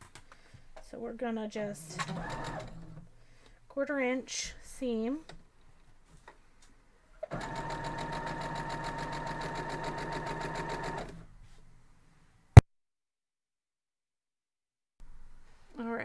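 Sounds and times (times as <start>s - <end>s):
sewing machine stitching: 1.8s - 3.1s, 7.2s - 11.2s.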